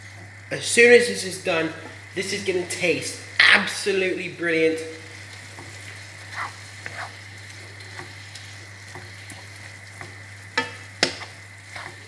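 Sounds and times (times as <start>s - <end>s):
food sizzling in a frying pan: 0.0s - 12.0s
wooden spoon scraping a pan: 5.5s - 7.2s, 7.8s - 12.0s.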